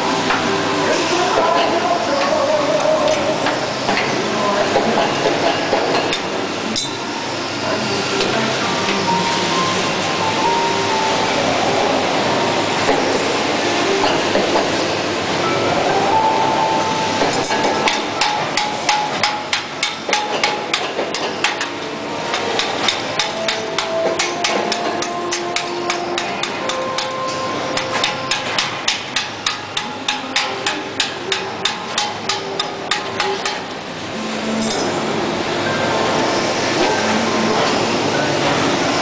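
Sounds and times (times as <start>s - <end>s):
steady machinery noise: 0.0s - 39.0s
hammering on metal: 17.4s - 21.7s, 27.8s - 33.7s.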